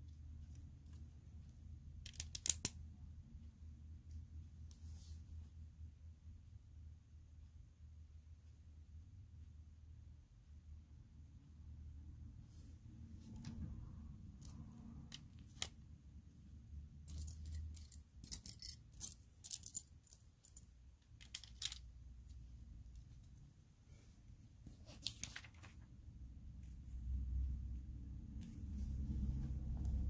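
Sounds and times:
low room hum: 0.0s - 30.0s
plastic toy bricks clicking: 2.0s - 2.8s, 20.5s - 21.8s.

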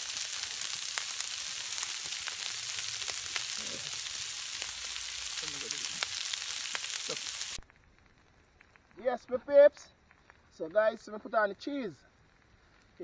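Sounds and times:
meat sizzling on a griddle: 0.0s - 8.2s.

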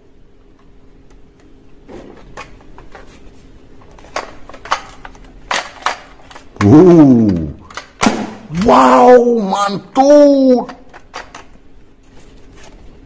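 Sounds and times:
faint steady hum: 0.0s - 13.0s
plastic toy guns clicking: 4.2s - 8.7s.

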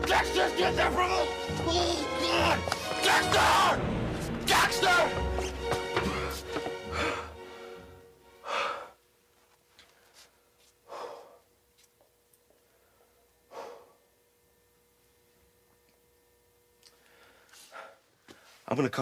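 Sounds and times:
background music: 0.0s - 8.9s
man breathing out heavily: 6.0s - 9.0s, 10.8s - 11.5s.

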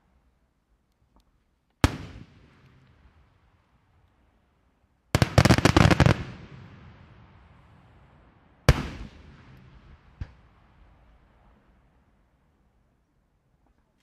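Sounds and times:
fireworks bangs: 5.2s - 7.6s, 8.6s - 11.2s.

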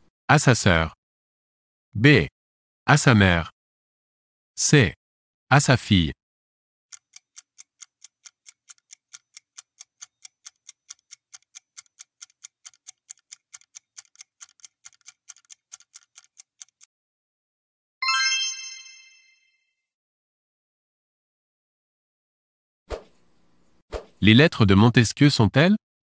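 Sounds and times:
clock-like timer ticks: 6.9s - 16.9s
bright chime: 18.0s - 19.6s.

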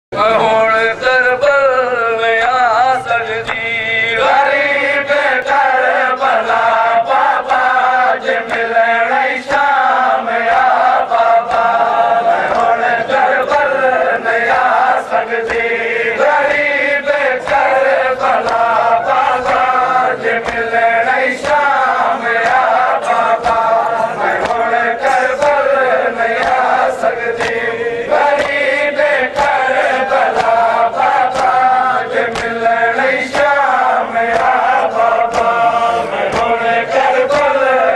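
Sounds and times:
crowd of men chanting: 0.1s - 37.9s
man chanting a lament: 0.1s - 37.9s.

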